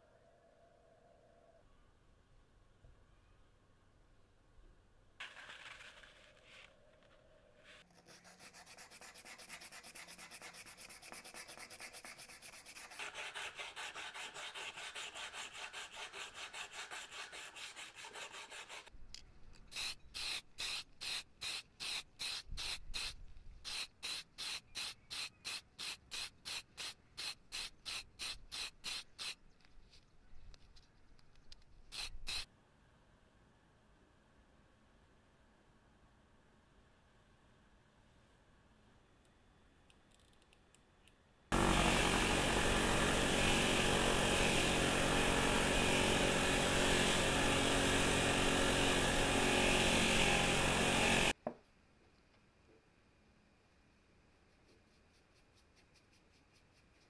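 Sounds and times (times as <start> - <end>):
sandpaper rasping on metal: 7.8 - 18.9.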